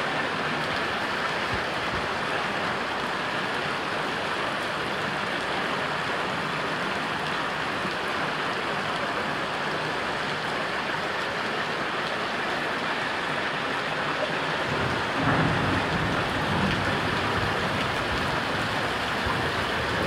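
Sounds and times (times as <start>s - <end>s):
floodwater running: 0.0s - 20.0s
heavy rain pouring: 0.0s - 20.0s.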